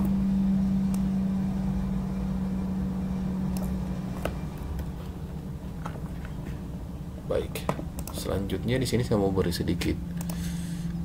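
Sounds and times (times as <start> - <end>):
low mechanical hum: 0.0 - 11.0
computer mouse clicks: 3.5 - 4.9, 8.0 - 8.3, 10.2 - 10.4.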